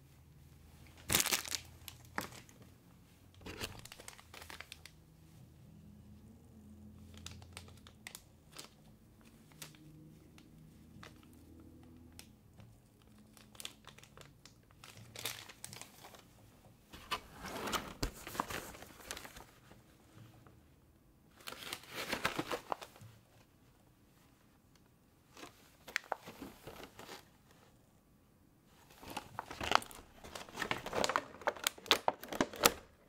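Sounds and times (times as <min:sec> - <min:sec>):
plastic bags crinkling: 0:01.0 - 0:02.6, 0:03.4 - 0:04.9, 0:07.1 - 0:09.8, 0:13.0 - 0:16.2, 0:17.0 - 0:19.6, 0:28.9 - 0:33.0.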